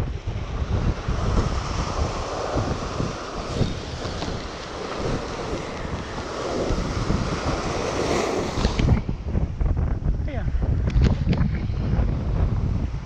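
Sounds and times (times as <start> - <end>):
wind buffeting microphone: 0.0 - 13.0
waves breaking over rocks: 0.2 - 9.2.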